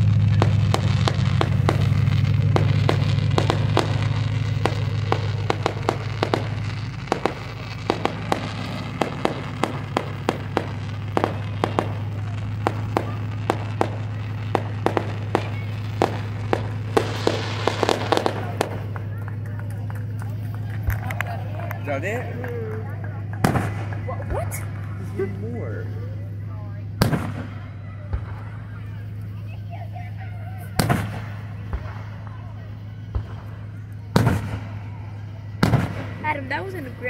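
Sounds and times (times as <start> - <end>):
fireworks popping and crackling: 0.0 - 37.0
low hum: 0.0 - 37.0.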